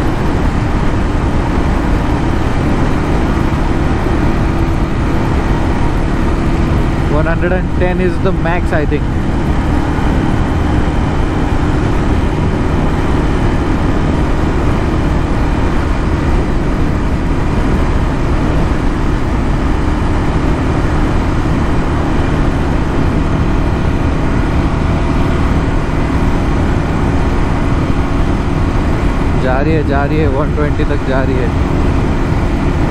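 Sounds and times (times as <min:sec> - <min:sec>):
motorcycle engine at full throttle: 0:00.0 - 0:32.9
wind and road noise: 0:00.0 - 0:32.9.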